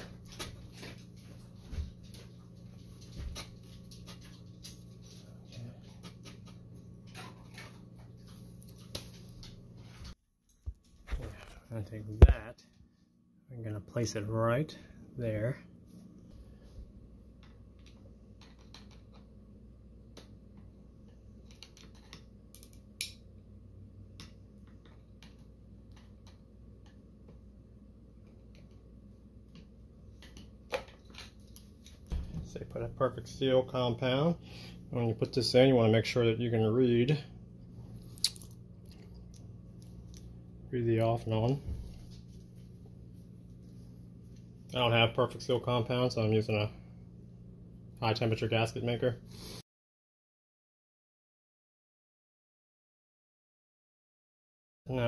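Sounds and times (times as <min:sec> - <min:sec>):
steady low hum: 0:00.0 - 0:49.6.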